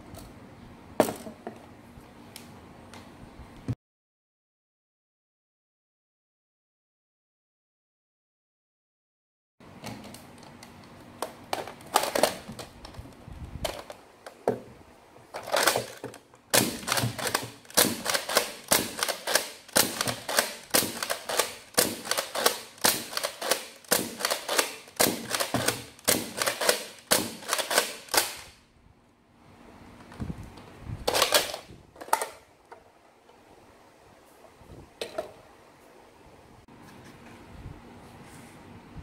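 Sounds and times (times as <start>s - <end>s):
toy blaster pumped and fired: 15.5s - 28.6s, 31.1s - 31.7s.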